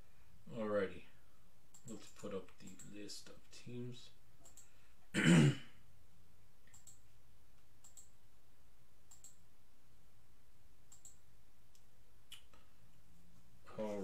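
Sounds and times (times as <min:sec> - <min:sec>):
computer mouse clicks: 0:01.7 - 0:02.9, 0:04.4 - 0:04.7, 0:06.7 - 0:07.0, 0:07.8 - 0:08.1, 0:09.1 - 0:09.4, 0:10.9 - 0:11.2
man clearing his throat: 0:05.1 - 0:05.8.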